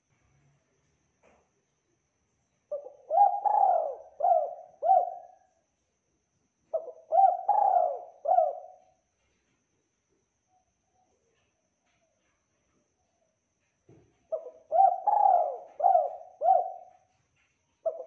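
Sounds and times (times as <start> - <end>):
dove cooing: 2.7 - 5.5, 6.7 - 8.9, 14.3 - 17.1.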